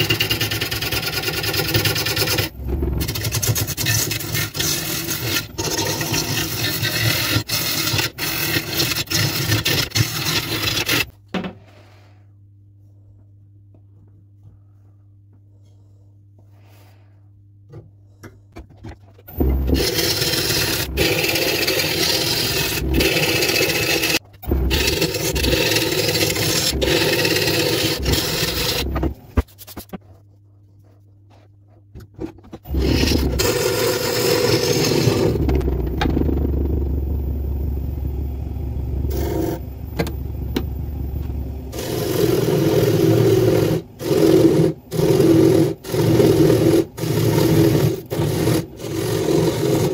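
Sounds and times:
gouge scraping wood on lathe: 0.0 - 11.1, 19.6 - 30.0, 32.7 - 35.6, 41.7 - 49.9
low hum: 2.4 - 3.8, 17.2 - 44.0.

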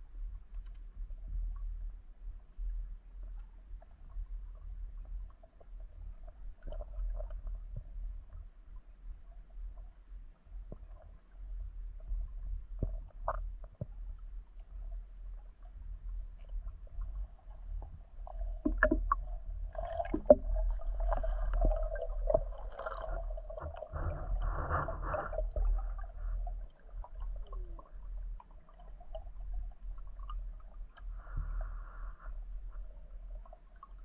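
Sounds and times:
muffled underwater rumble: 0.0 - 34.0
bubbling gurgles: 18.4 - 32.1
sharp clicks and knocks: 18.6 - 19.2.

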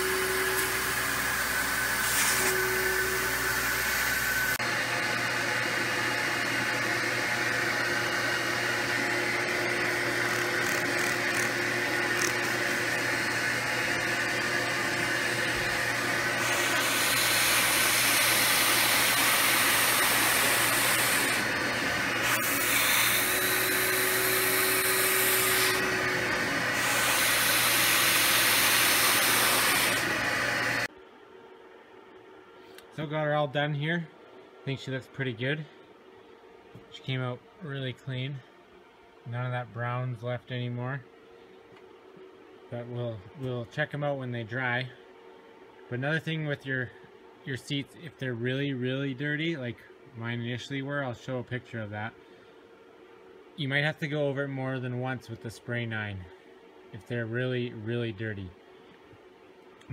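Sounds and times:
vacuum motor hissing: 0.0 - 30.9.

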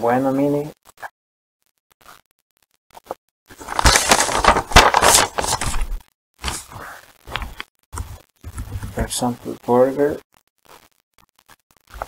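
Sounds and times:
paper menu crackling and rustling: 2.9 - 9.2.

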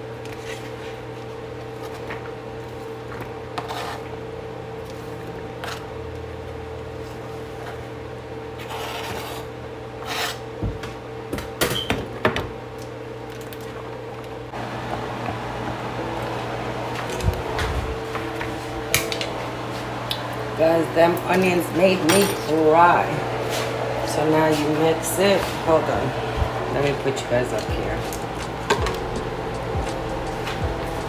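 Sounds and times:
appliance hum: 0.0 - 31.0
knife scraping cutting board: 3.6 - 4.1, 8.6 - 10.4.

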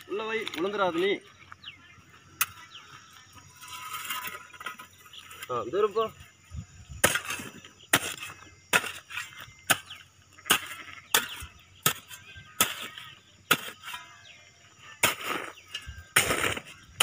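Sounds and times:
hoe chopping into gravelly soil: 7.0 - 14.2, 15.0 - 17.0.

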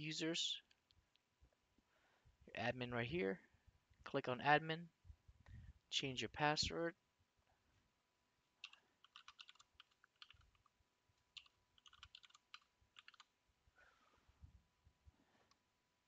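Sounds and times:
faint keyboard typing: 8.6 - 13.4.

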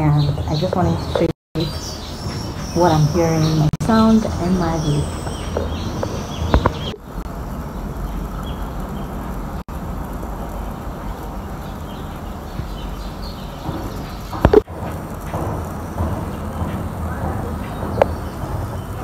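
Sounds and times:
steady low rumble: 0.0 - 19.0
sharp knocks: 13.4 - 19.0.

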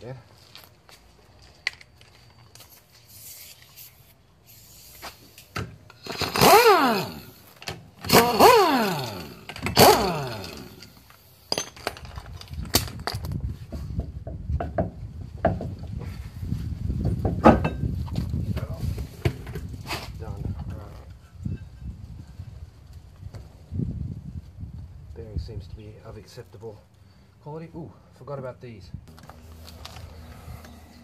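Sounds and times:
knocks and scraping of wheel: 4.9 - 21.8
impact wrench whine: 5.9 - 11.2.

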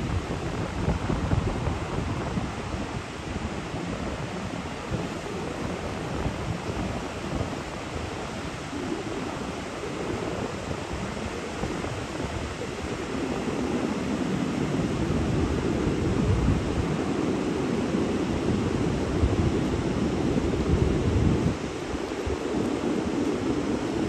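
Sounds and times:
ocean surf breaking on beach: 0.0 - 24.0.

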